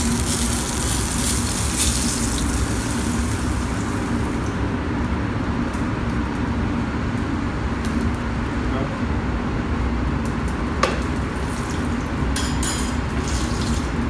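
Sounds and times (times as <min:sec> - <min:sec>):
butter sizzling in frying pan: 0:00.0 - 0:04.7
kitchen exhaust hood humming: 0:00.0 - 0:14.0.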